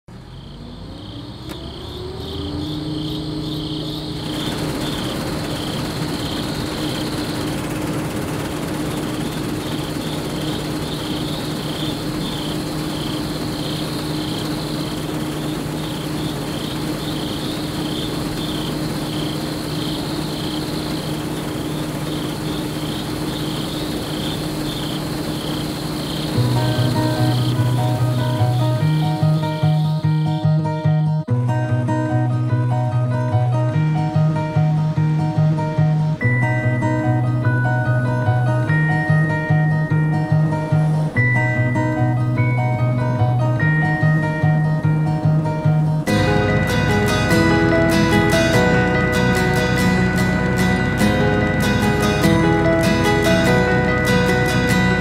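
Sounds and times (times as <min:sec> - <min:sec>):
combine harvester engine hum: 0:00.1 - 0:30.4, 0:45.8 - 0:55.0
crickets chirping: 0:00.1 - 0:30.6.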